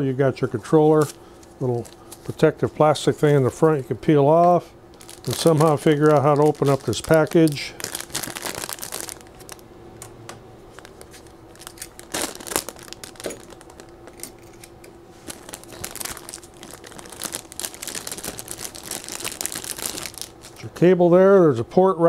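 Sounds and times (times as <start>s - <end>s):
faint steady hum: 0.0s - 22.0s
plastic bag crinkling: 0.9s - 2.7s, 4.9s - 9.6s, 10.7s - 14.5s, 15.2s - 20.6s.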